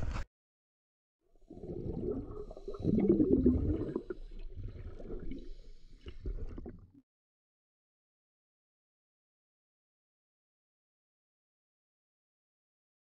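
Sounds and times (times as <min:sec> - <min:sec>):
underwater bubbling and gurgling: 0:01.4 - 0:07.0.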